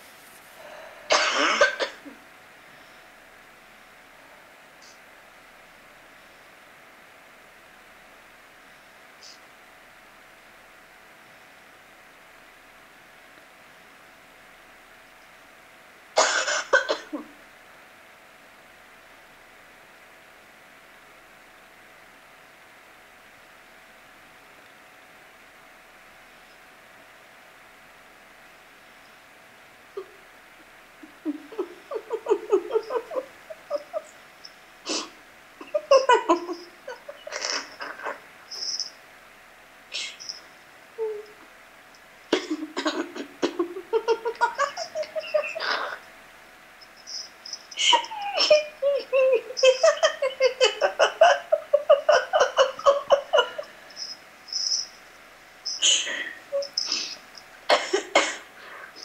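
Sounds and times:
person laughing: 31.0s - 34.2s, 34.9s - 38.8s, 42.3s - 46.0s, 47.1s - 54.1s, 55.7s - 57.2s.

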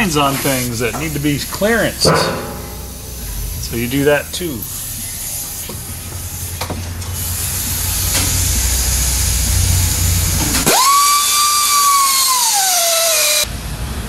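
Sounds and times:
pneumatic grinder hiss and drone: 4.6s - 13.5s
grinder spinning with high whine: 8.9s - 13.5s.

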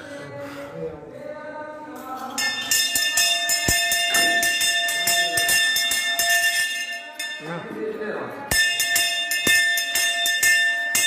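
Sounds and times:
brass hand bell jangling: 2.2s - 7.6s, 8.5s - 11.0s.

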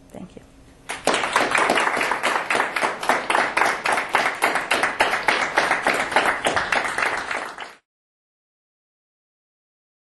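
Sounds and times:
audience applauding: 0.9s - 7.8s.

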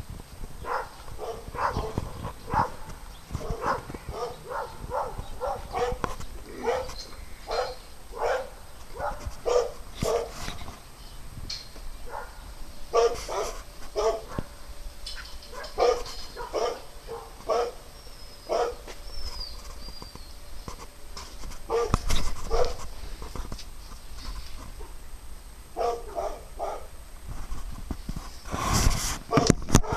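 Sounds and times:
dog barking: 0.6s - 10.4s, 12.1s - 14.5s, 15.5s - 17.8s, 18.5s - 18.9s, 21.7s - 22.8s, 25.8s - 26.9s, 29.3s - 29.9s.

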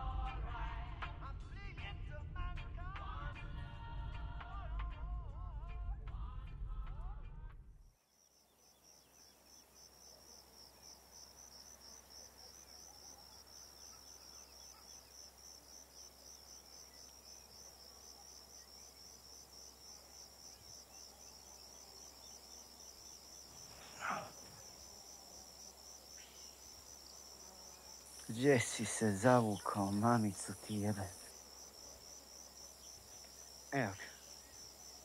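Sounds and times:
insects chirping in a high trill: 8.0s - 35.0s.

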